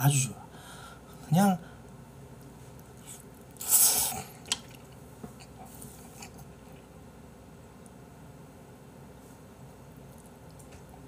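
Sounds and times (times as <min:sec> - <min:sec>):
chewing: 0:02.7 - 0:06.9, 0:10.0 - 0:11.0
slurping noodles: 0:03.0 - 0:06.8.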